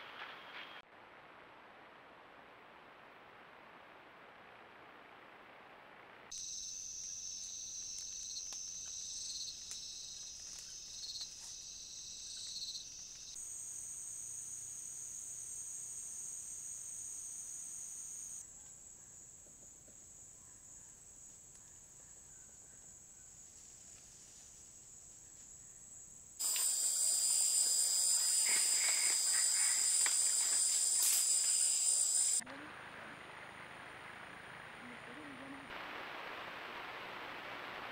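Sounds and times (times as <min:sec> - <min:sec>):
insects chorus: 0:06.3 - 0:32.4.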